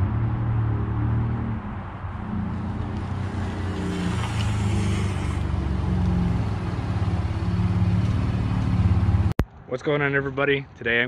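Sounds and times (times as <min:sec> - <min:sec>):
pickup engine running: 0:02.2 - 0:09.3.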